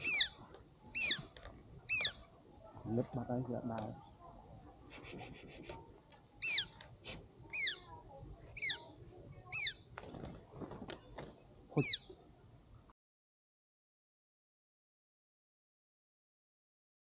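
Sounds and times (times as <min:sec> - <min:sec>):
bird rapid chatter: 0:00.0 - 0:00.4, 0:01.0 - 0:01.3, 0:01.9 - 0:02.3, 0:06.4 - 0:06.8, 0:07.5 - 0:07.8, 0:08.6 - 0:08.9, 0:09.5 - 0:09.9, 0:11.8 - 0:12.1
bird call sweeping downward: 0:11.8 - 0:12.1.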